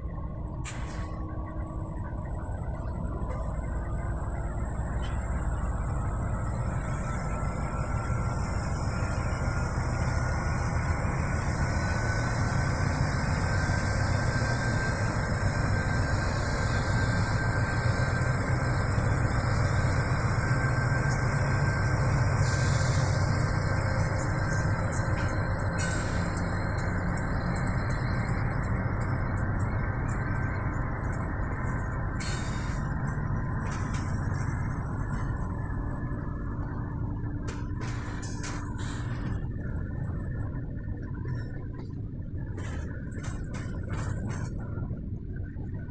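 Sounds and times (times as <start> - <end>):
locomotive engine rumble: 0.0 - 45.9.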